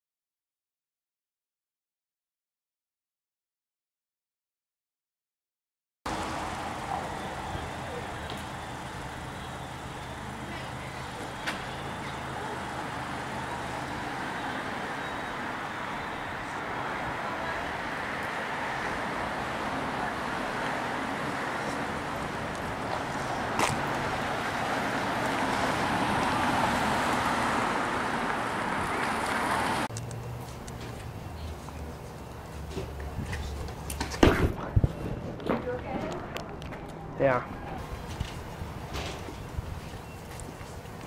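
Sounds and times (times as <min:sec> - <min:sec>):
cars driving past: 0:06.1 - 0:34.2.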